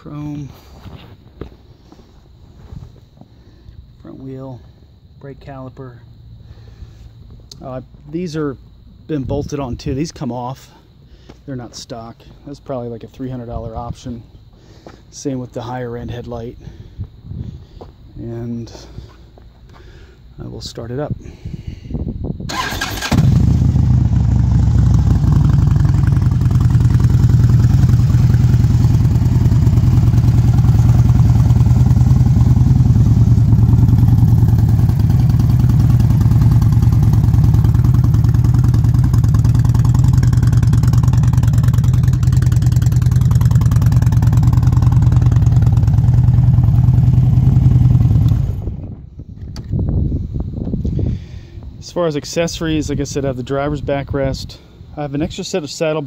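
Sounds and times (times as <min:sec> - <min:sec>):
motorcycle engine idling: 0:22.5 - 0:49.2.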